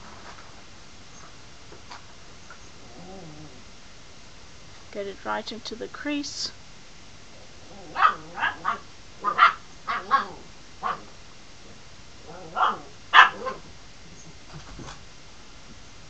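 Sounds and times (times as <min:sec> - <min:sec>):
puppy barking: 0:07.9 - 0:11.1, 0:12.4 - 0:13.7.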